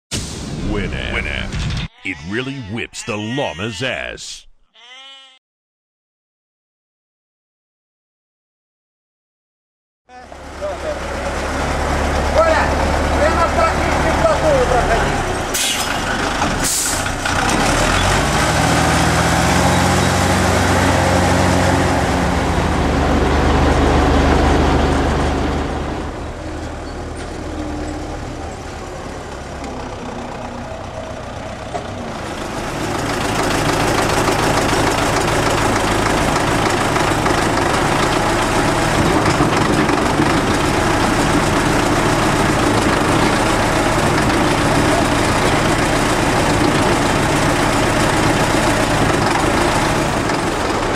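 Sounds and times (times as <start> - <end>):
tractor diesel engine running: 28.9 - 50.9.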